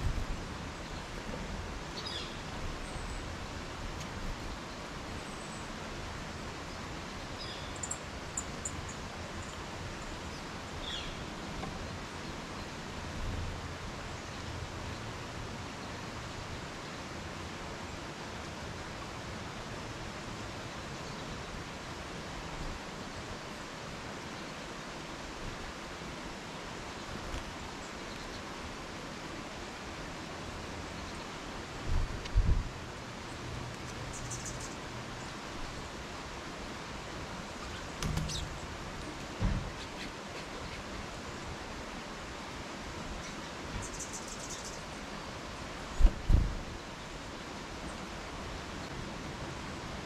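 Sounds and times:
outdoor background hiss: 0.0 - 50.0
faint high bird chirps: 7.4 - 9.6, 34.1 - 35.3, 37.6 - 38.6, 43.2 - 44.8.

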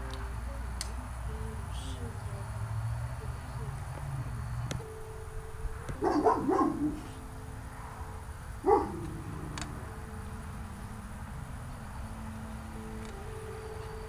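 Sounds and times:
dog barking: 6.0 - 7.2, 8.6 - 9.3.

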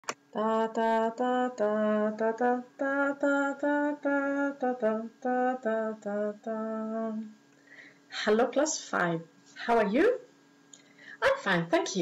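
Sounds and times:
woman singing wordless tune: 0.2 - 7.4.

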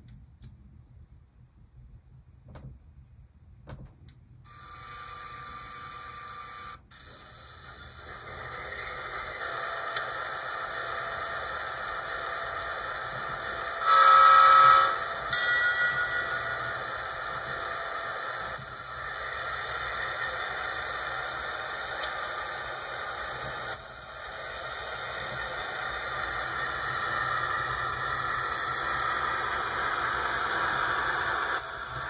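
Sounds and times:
locomotive horn blast: 13.8 - 15.0
diesel engine running sound: 16.4 - 32.0.

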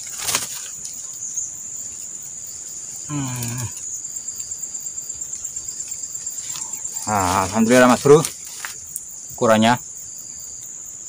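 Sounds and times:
insects chirring: 0.0 - 11.0
short voiced utterance: 3.1 - 3.8.

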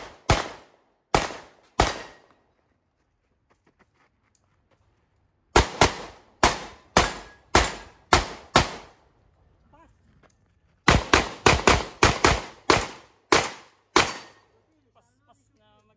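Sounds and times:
pistol shots with short echo: 0.0 - 2.3, 5.6 - 9.0, 10.9 - 14.5.

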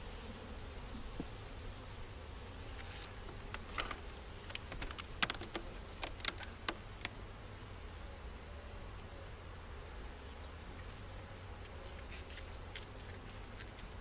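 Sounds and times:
sharp clicks and cracks: 3.4 - 7.2.

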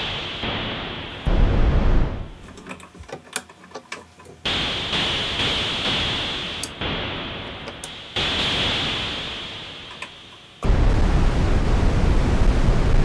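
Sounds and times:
synthesizer filtered hiss swells: 0.0 - 2.5, 4.4 - 13.0
scattered clicks: 7.6 - 8.0.

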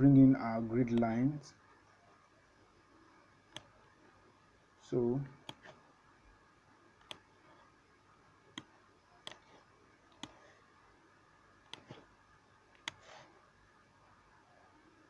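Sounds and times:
computer mouse clicks: 3.5 - 3.7, 5.4 - 5.8, 7.0 - 7.3, 8.5 - 10.4, 11.6 - 12.1, 12.7 - 13.2.

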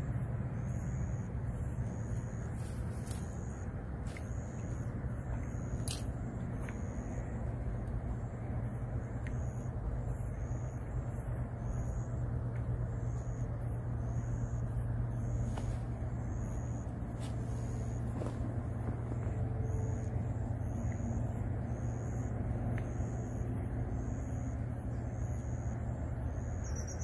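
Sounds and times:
low outdoor rumble: 0.0 - 27.0
faint high chirp: 26.4 - 27.0.

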